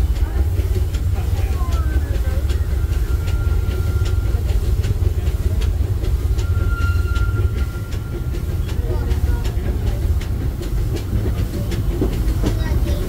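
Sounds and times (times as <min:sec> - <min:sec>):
train rumble: 0:00.0 - 0:13.0
wheels clicking over rail joints: 0:00.0 - 0:13.0
high wheel squeal: 0:01.8 - 0:09.5.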